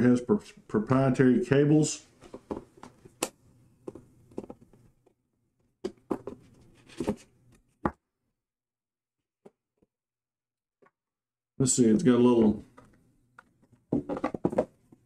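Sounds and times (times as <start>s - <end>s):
taps and knocks on cardboard: 5.8s - 6.4s.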